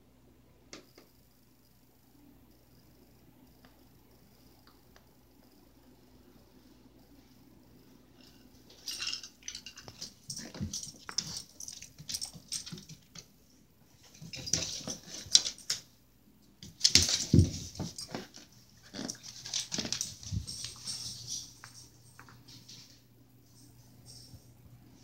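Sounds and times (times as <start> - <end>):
dog playing with toy: 8.7 - 13.2, 16.8 - 22.0.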